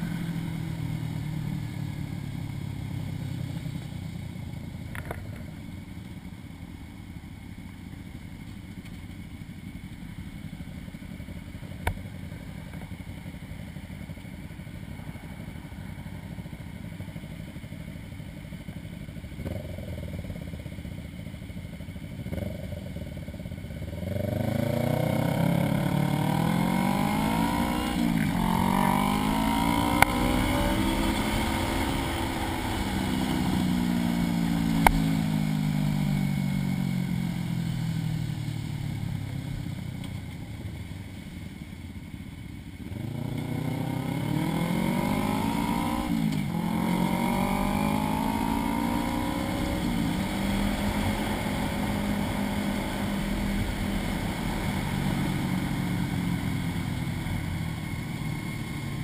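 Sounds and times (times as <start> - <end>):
motorcycle engine pulling away: 16.1 - 59.0.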